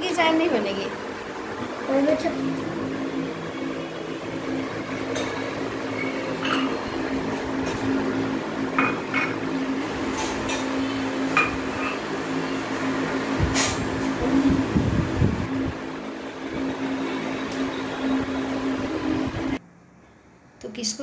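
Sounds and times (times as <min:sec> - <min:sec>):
ceramic cups clinking: 0:05.1 - 0:07.9, 0:08.7 - 0:09.5, 0:10.1 - 0:12.1.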